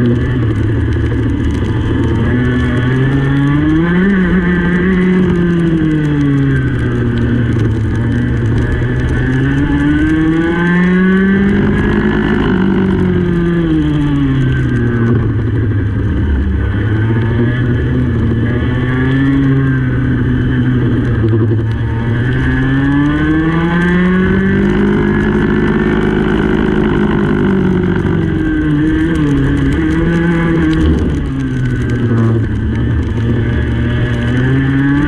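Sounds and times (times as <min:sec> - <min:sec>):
go-kart engine racing: 0:00.0 - 0:35.0.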